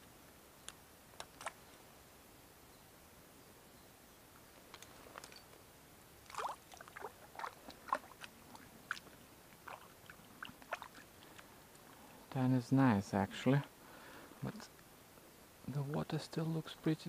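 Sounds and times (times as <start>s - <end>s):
light clicks and rustles: 4.3s - 5.7s.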